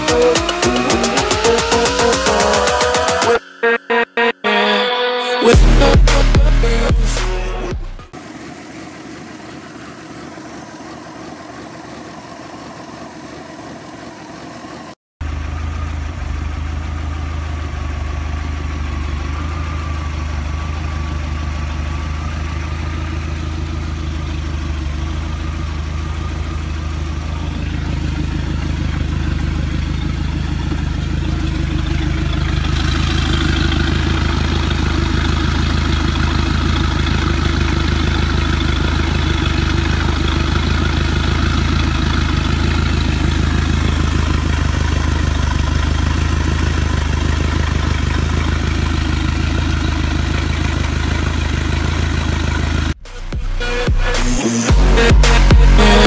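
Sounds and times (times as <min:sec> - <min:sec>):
boat engine idling: 0:08.0 - 0:54.1
water splashing and hissing: 0:08.2 - 0:15.0.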